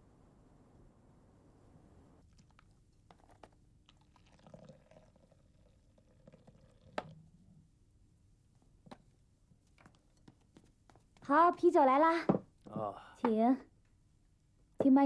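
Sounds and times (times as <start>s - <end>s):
beer pouring from tap into glass: 4.0s - 7.1s.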